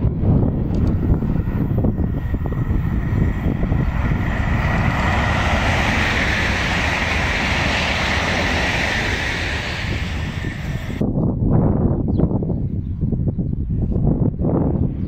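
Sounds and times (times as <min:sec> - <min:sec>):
high-speed train passing: 0:00.0 - 0:11.1.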